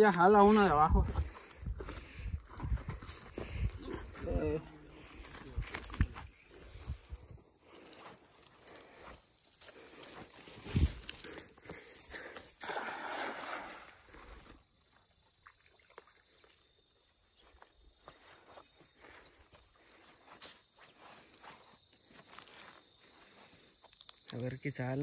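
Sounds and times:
net splashing on water: 12.6s - 14.0s.

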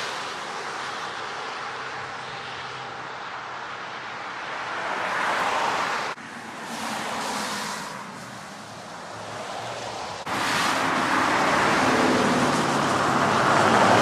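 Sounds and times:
car tyres swishing on wet road: 4.8s - 14.0s
rain hissing on wet street: 6.6s - 8.9s.

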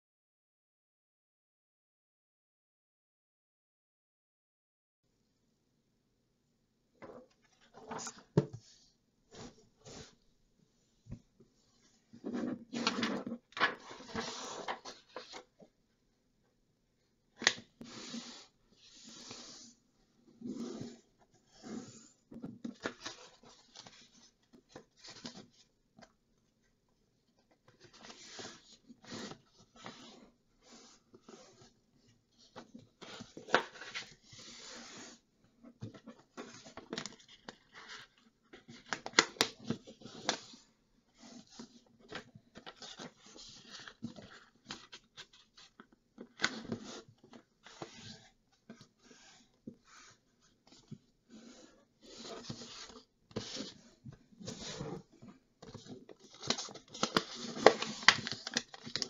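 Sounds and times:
paper rustling and crinkling: 7.1s - 8.4s, 55.6s - 59.0s.

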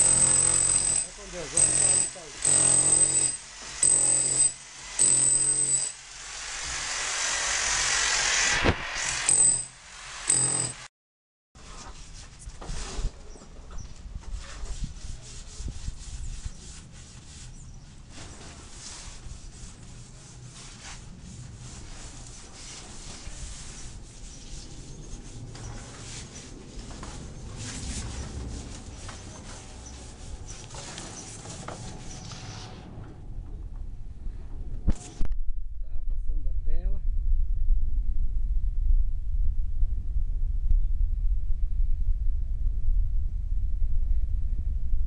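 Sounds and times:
rising hiss: 5.9s - 10.6s
scraping rough masonry: 16.8s - 33.0s.

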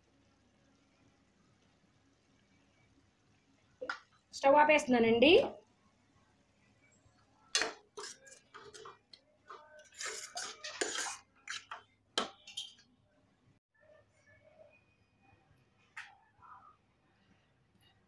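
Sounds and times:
steel spatula scraping pan: 7.6s - 11.8s.

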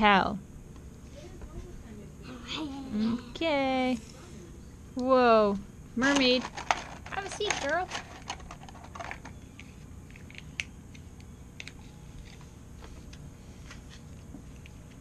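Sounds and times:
low room hum: 0.0s - 15.0s
plastic toys clicking and tapping: 6.0s - 9.4s.

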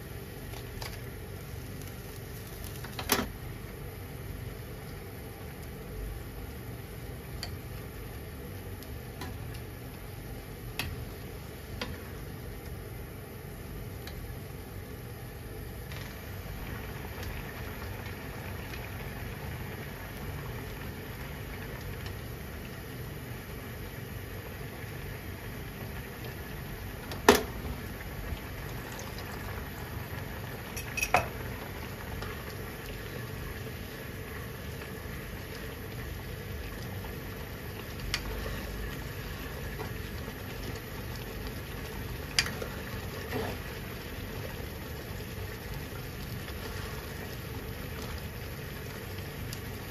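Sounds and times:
broth bubbling in a pan: 0.0s - 49.9s.

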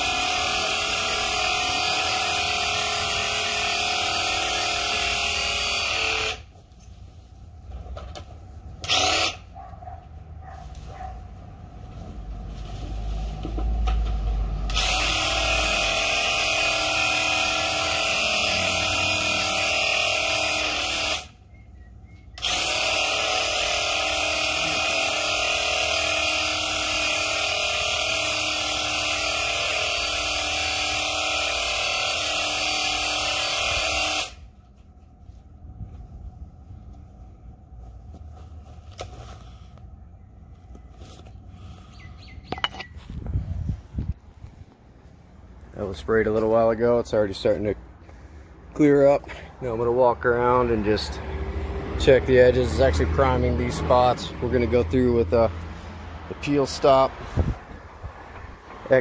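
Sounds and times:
paint sprayer pump buzz: 0.0s - 6.5s, 8.8s - 9.5s, 14.6s - 21.4s, 22.4s - 34.5s.

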